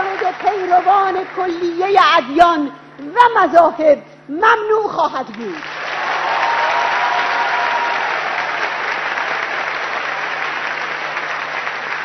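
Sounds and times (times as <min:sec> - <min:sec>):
audience applauding: 0:00.0 - 0:01.4, 0:05.6 - 0:12.0.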